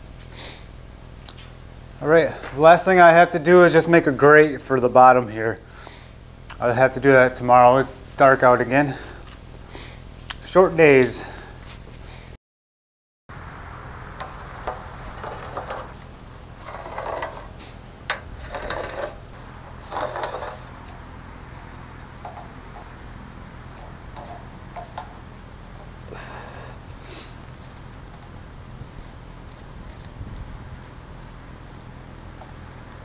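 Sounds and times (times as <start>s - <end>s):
light scrapes marking a line: 14.2s - 25.2s
wooden board scraping on metal grate: 14.2s - 30.1s.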